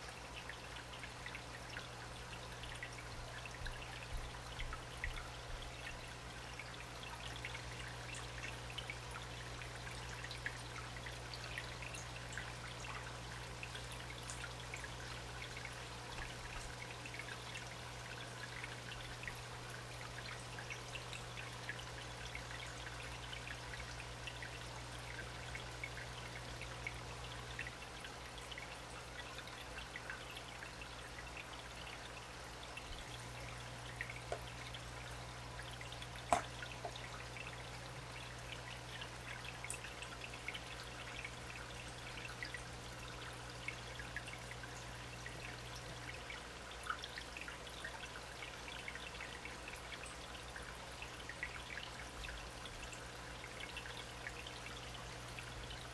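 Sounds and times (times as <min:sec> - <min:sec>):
aquarium water trickling: 0:00.0 - 0:55.9
low steady hum: 0:00.0 - 0:55.9.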